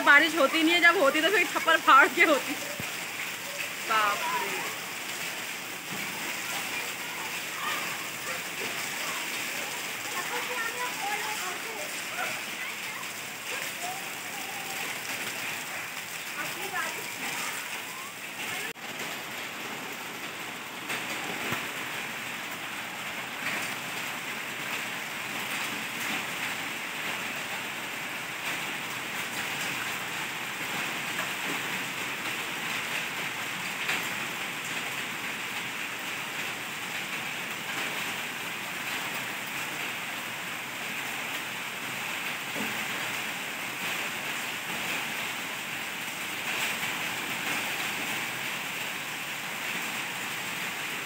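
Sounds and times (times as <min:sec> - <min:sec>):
heavy rain pouring: 0:00.0 - 0:51.0.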